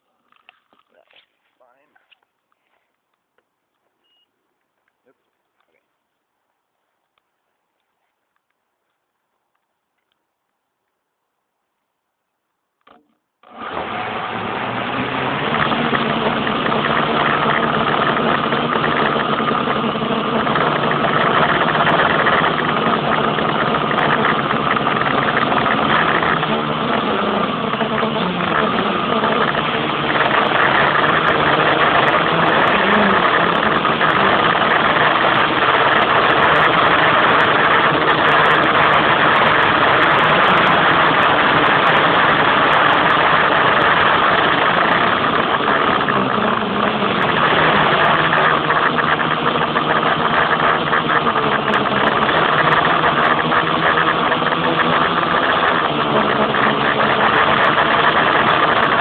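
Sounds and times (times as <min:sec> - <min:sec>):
quadcopter propellers buzzing: 0:13.4 - 0:59.0.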